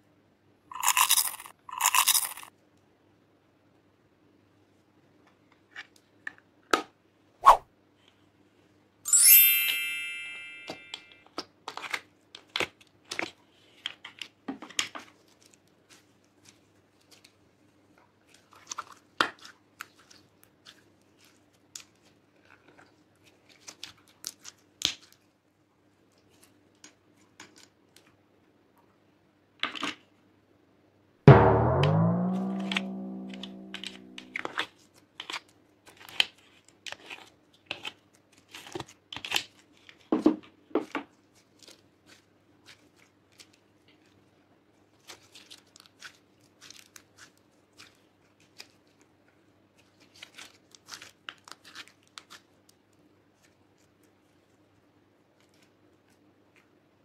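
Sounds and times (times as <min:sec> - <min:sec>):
bright ringing ping: 0:09.1 - 0:11.2, 0:31.3 - 0:34.3.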